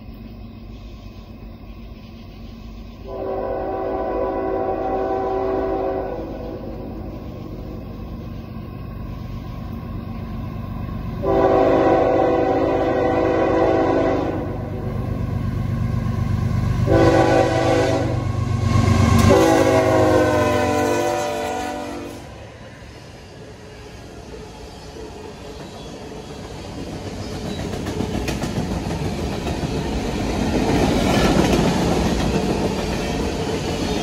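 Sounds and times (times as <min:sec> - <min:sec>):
diesel train rumble: 0:00.0 - 0:34.0
locomotive air horn blasts: 0:03.0 - 0:06.8, 0:11.2 - 0:14.8, 0:16.8 - 0:18.3, 0:19.2 - 0:22.4.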